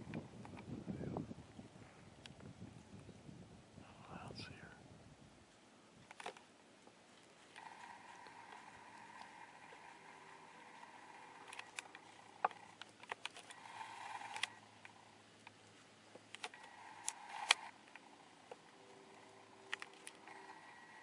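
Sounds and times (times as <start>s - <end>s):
soft rustle: 5.4s - 21.0s.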